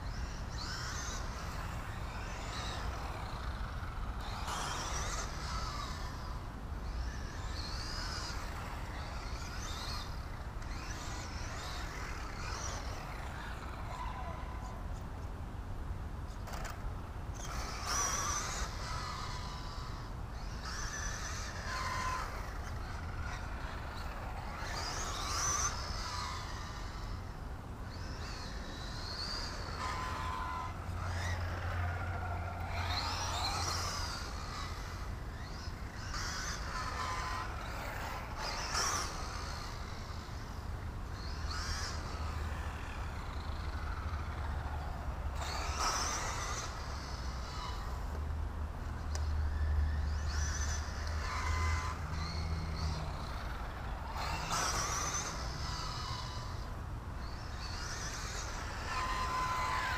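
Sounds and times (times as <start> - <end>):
electric motor whine: 16.4 - 59.9.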